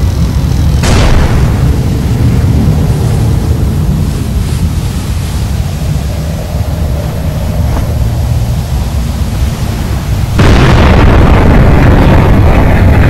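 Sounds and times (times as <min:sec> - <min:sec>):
deep steady rumble: 0:00.0 - 0:13.0
loud boom: 0:00.8 - 0:03.0, 0:10.3 - 0:13.0.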